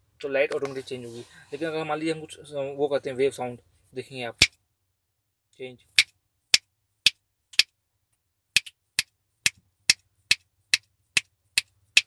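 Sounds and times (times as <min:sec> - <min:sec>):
sharp clicks made by hand: 0:06.0 - 0:07.7, 0:08.6 - 0:12.0.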